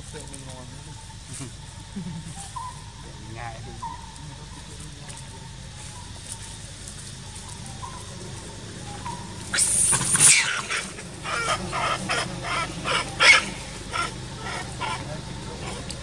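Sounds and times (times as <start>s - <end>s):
harsh animal call: 7.7s - 16.0s
short repeated animal calls: 8.8s - 16.0s.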